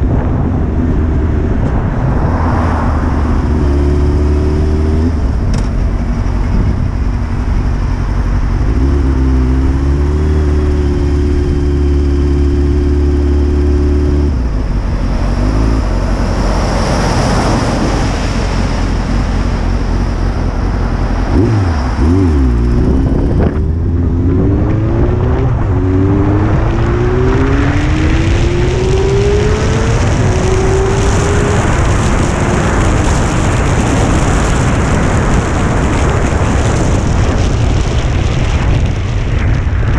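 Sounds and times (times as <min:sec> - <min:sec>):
motorcycle engine accelerating: 0:00.0 - 0:39.9
wind rush on microphone: 0:00.0 - 0:39.9.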